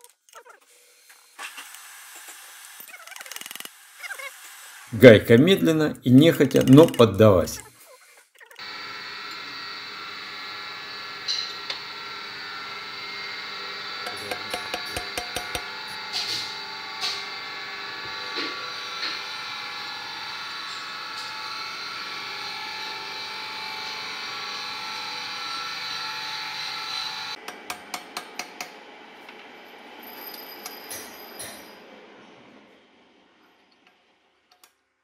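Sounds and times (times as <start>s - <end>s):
machine hum: 8.6s - 27.4s
metal tool clicks and knocks: 14.3s - 15.6s.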